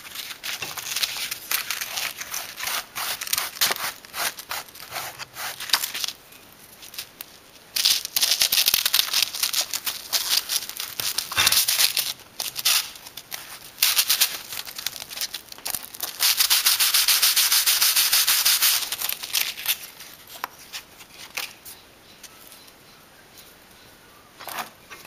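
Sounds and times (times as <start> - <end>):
bone rasping on sandpaper: 0.9 - 6.0.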